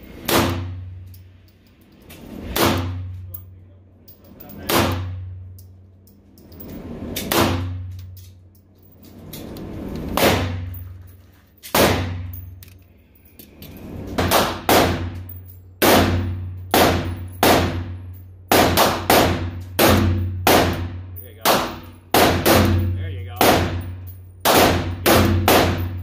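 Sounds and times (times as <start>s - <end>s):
steady low hum: 0.0s - 26.0s
rifle shots indoors: 0.1s - 1.0s, 2.4s - 3.4s, 4.6s - 5.4s, 7.1s - 8.2s, 10.1s - 10.8s, 11.6s - 12.4s, 14.1s - 26.0s.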